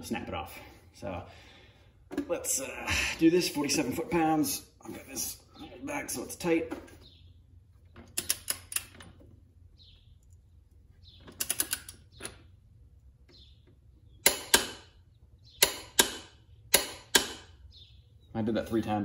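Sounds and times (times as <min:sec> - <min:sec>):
torque wrench clicking: 0:11.3 - 0:12.3, 0:14.2 - 0:14.8.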